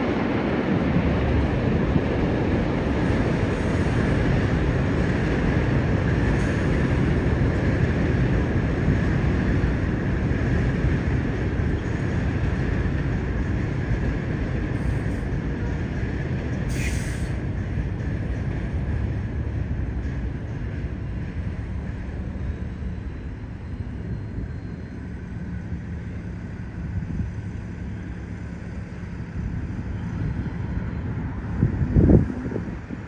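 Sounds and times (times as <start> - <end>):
train rumbling: 0.0 - 33.0
short high hiss: 16.7 - 17.4.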